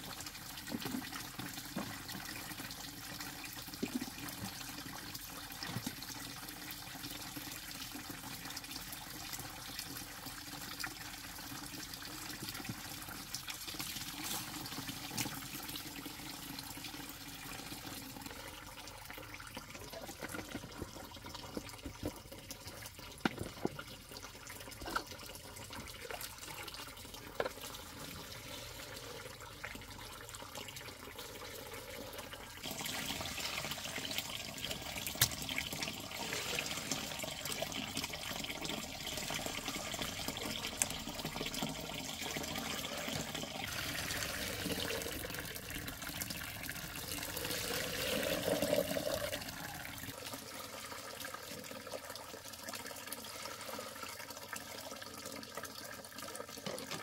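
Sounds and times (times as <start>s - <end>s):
water running: 10.0s - 50.1s.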